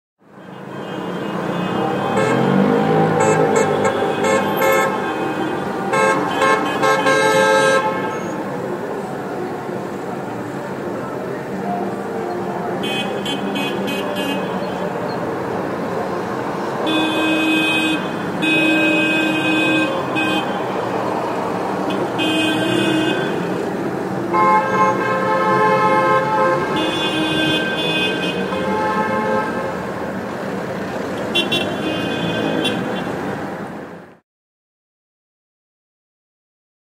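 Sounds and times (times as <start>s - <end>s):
traffic noise: 0.2s - 34.2s
car horns honking: 0.3s - 8.4s, 11.7s - 15.3s, 16.7s - 29.8s, 31.1s - 33.2s.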